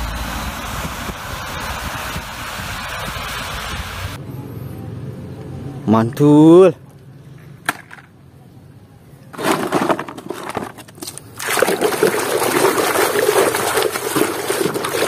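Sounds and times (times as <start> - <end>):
water sloshing in plastic basin: 9.4 - 15.0.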